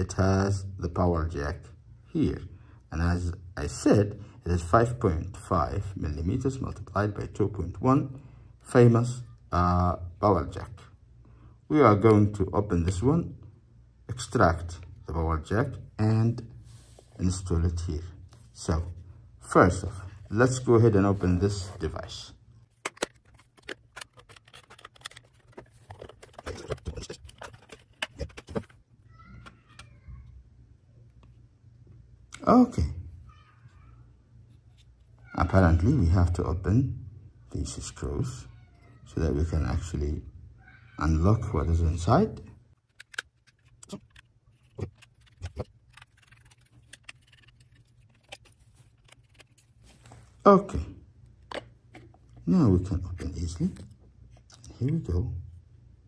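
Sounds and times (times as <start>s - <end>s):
plastic clips clicking and cracking: 22.8s - 28.7s, 42.8s - 49.5s.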